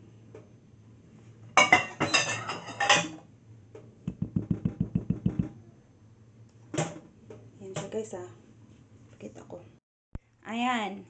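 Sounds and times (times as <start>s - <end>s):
dull taps: 4.1s - 5.6s.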